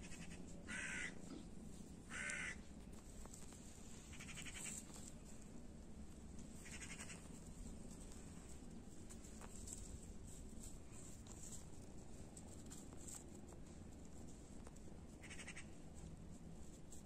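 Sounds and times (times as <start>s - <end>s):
short animal calls: 0.0s - 1.4s, 2.1s - 2.6s, 4.1s - 4.8s, 6.6s - 7.2s.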